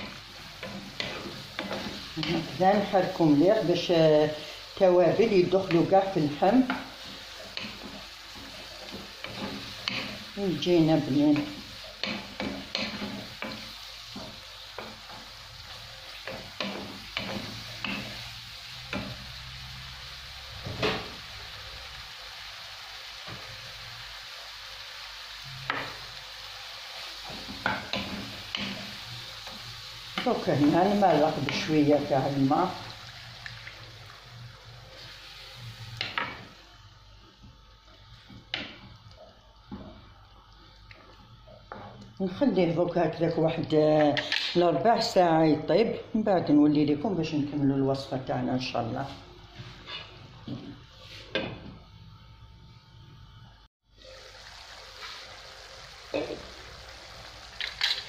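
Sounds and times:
wooden spoon scraping a pan: 0.0 - 3.2, 5.2 - 18.3, 49.0 - 51.5
meat and sauce sizzling: 0.0 - 51.3, 53.8 - 58.0
wooden spatula scraping pan: 49.1 - 51.4.

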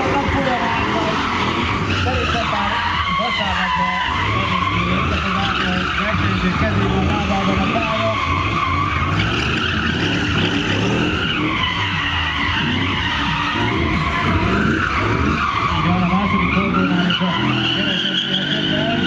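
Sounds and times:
car engine revving: 0.0 - 19.0
tyres screeching: 0.0 - 19.0.

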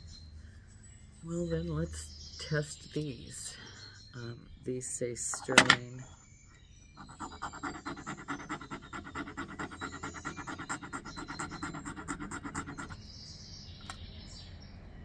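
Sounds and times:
metal scraping on stone: 7.0 - 13.0.

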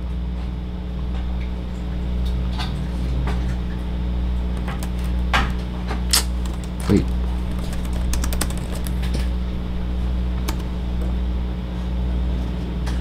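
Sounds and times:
low hum: 0.0 - 13.0
laptop keys clicking: 6.1 - 9.2, 10.4 - 10.7.

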